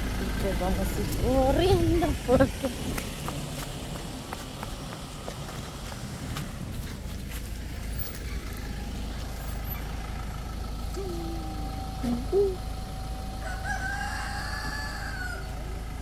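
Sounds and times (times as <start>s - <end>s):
rooster crowing: 13.3s - 15.8s.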